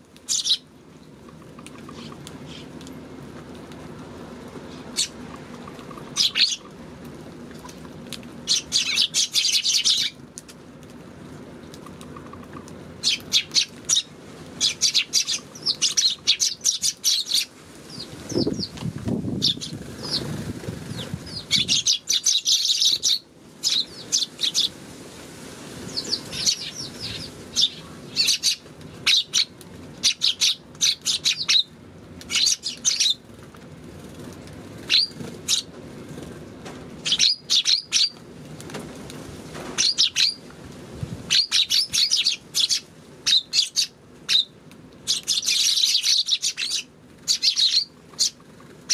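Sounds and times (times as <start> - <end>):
sparrows chirping: 0.3 - 0.7, 1.7 - 2.7, 4.7 - 6.7, 8.4 - 10.2, 13.0 - 18.8, 19.4 - 24.8, 25.8 - 31.7, 32.3 - 33.2, 34.9 - 35.7, 37.0 - 38.2, 39.8 - 40.4, 41.3 - 48.9.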